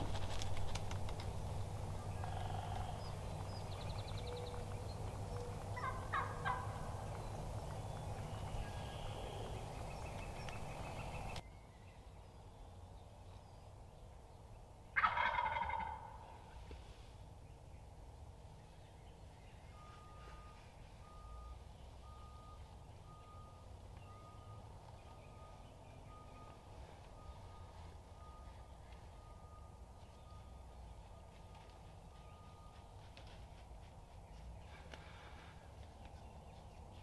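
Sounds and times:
turkey gobble: 5.4s - 7.0s, 15.0s - 16.4s.

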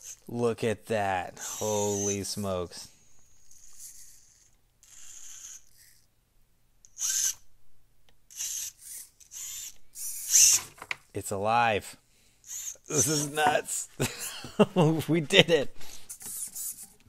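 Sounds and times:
rc car electric motor whirring: 0.0s - 0.3s, 1.4s - 2.3s, 3.2s - 6.1s, 6.9s - 7.4s, 8.3s - 10.8s, 12.4s - 13.4s, 16.1s - 16.9s.

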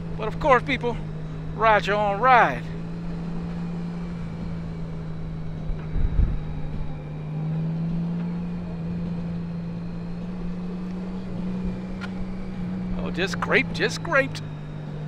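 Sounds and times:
motorcycle engine running: 0.0s - 15.0s
wind rumble: 4.9s - 7.0s.

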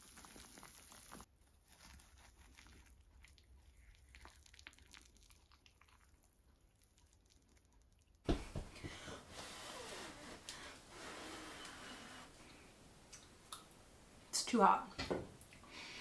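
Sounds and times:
sudden thump: 8.3s - 8.7s
room noise: 8.3s - 15.7s.

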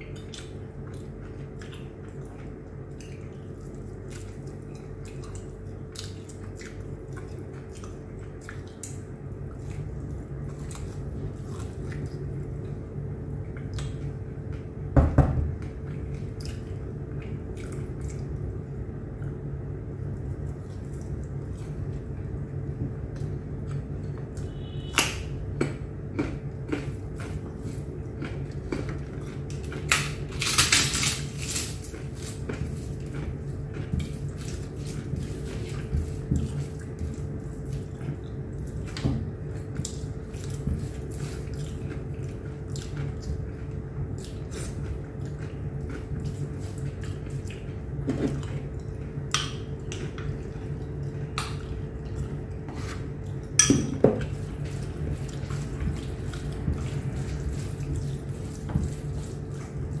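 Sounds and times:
wet chewing and mouth clicks: 0.0s - 12.8s, 25.6s - 30.6s, 31.5s - 53.6s
steady low hum: 0.0s - 60.0s.

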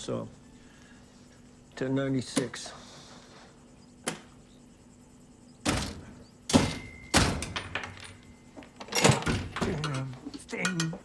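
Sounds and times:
cash register clunks: 8.8s - 10.1s.

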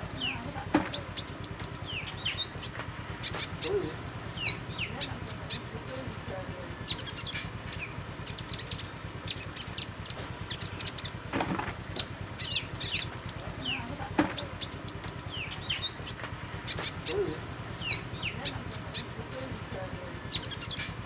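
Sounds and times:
sunbird high thin chirps: 0.0s - 3.8s, 6.8s - 11.2s, 12.0s - 17.2s, 20.3s - 21.0s.

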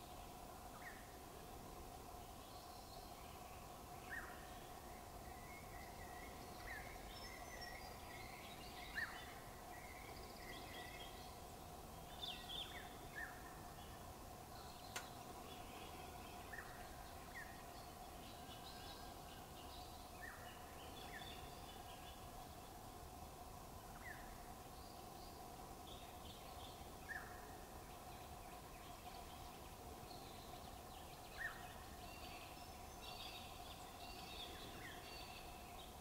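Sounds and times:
small birds chirping: 0.0s - 36.0s.

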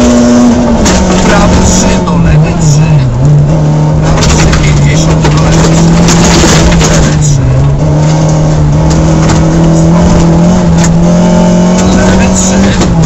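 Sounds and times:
gravel rumbling under tyres: 0.0s - 13.0s
rally car engine at high revs: 0.0s - 13.0s.

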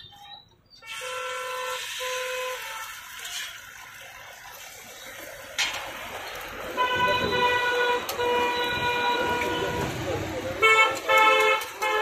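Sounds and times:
egg sizzling on a griddle: 0.9s - 6.8s.

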